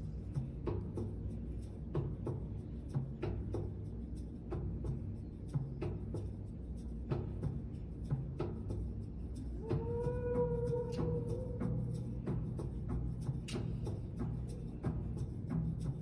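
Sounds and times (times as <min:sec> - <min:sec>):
low steady drone: 0:00.0 - 0:16.0
slow drum beat: 0:07.1 - 0:16.0.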